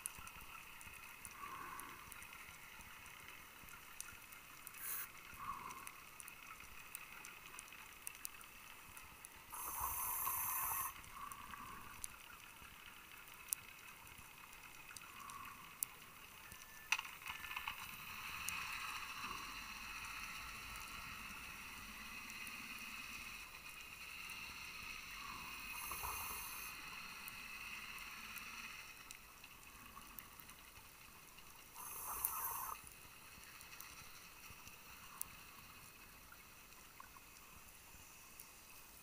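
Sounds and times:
regulator hissing inhale: 1.3 - 2.2, 4.7 - 6.0, 9.5 - 12.0, 24.5 - 28.9, 31.8 - 32.8.

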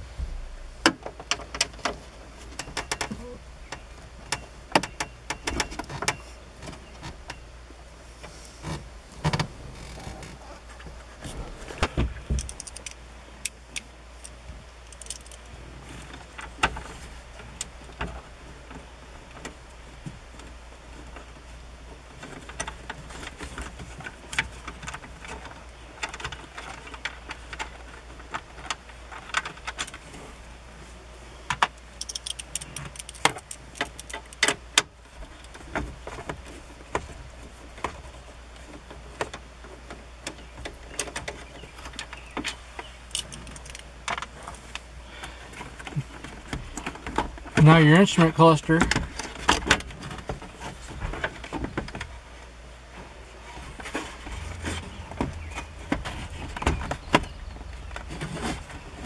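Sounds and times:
hand tool clicking on screws: 32.0 - 34.6.

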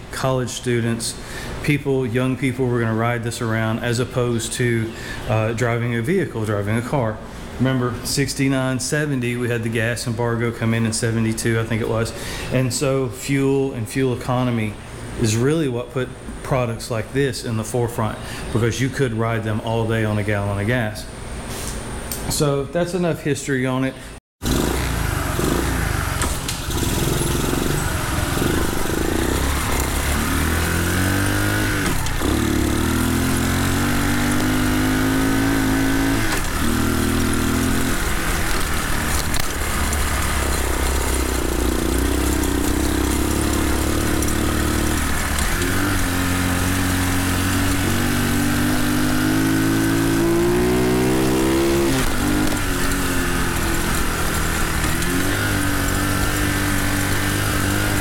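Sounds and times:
mini bike engine revving: 24.4 - 58.0.

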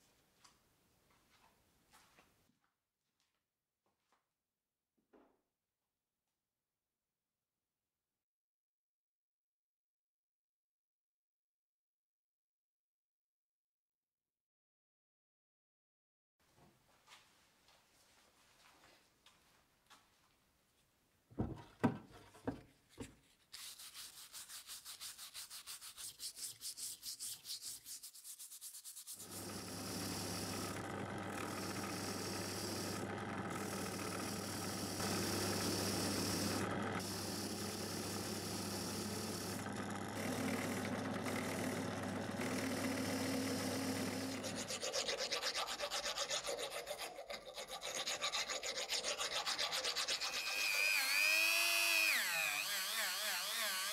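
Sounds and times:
knocks: 21.3 - 22.7
fast rhythmic scratching: 23.6 - 29.4
drill press motor humming: 29.2 - 44.9, 50.4 - 53.9
wire wheel scrubbing rust: 43.3 - 51.0
rasping scrape: 43.5 - 50.8.

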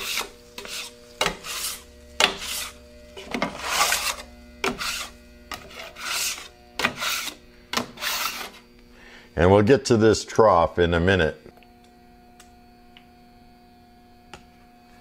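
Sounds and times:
scraper scraping griddle: 0.0 - 8.7.

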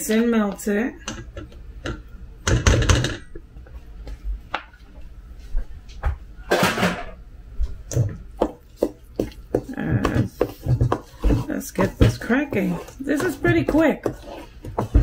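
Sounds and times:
pan set down: 6.5 - 7.2
wooden spoon knocking bowl: 8.4 - 15.0
spatula scraping a pan: 9.6 - 15.0.

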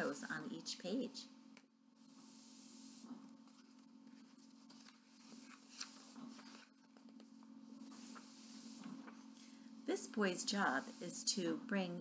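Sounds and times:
steady low hum: 0.0 - 12.0
book pages rustling: 3.4 - 9.3.

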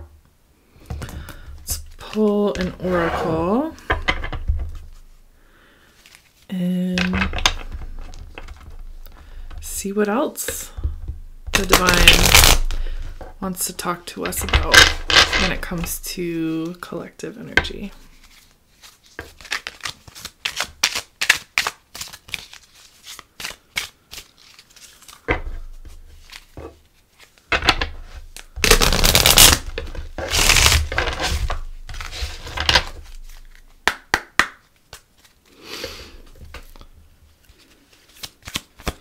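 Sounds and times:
cards being shuffled: 0.8 - 5.0, 5.9 - 13.4, 17.8 - 39.0
cards riffling: 11.5 - 13.0, 28.3 - 33.8, 37.5 - 39.0.

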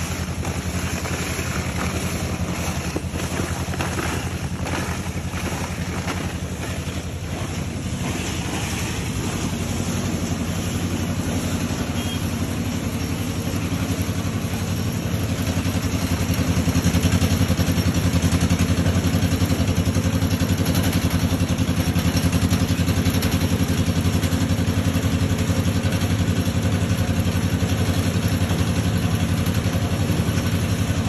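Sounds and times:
machine engine running: 0.0 - 31.0.

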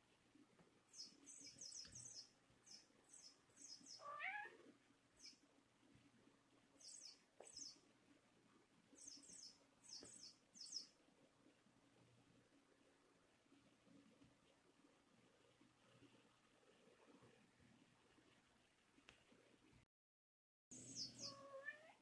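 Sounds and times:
cat meowing: 4.0 - 4.7, 21.2 - 22.0.

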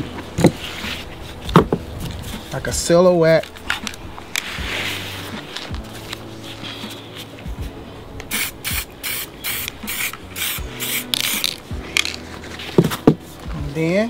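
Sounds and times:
spray can hissing bursts: 8.3 - 12.1.

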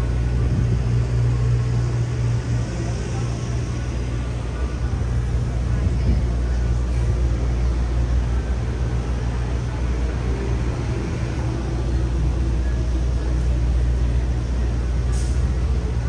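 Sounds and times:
city traffic rumble: 0.0 - 16.0
brief hiss: 15.1 - 15.5.

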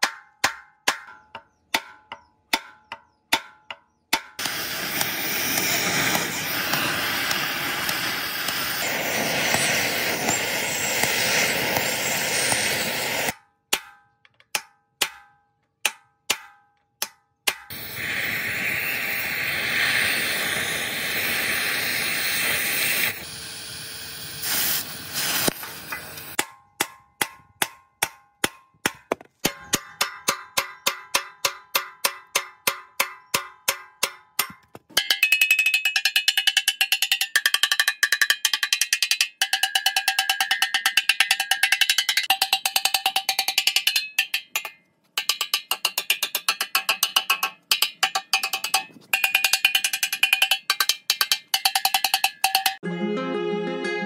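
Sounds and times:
gas torch hissing: 4.4 - 13.3, 17.7 - 26.4.

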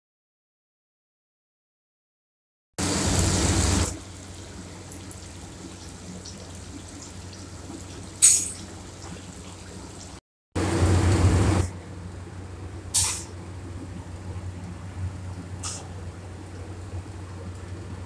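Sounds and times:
hot oil sizzling: 2.8 - 10.2.

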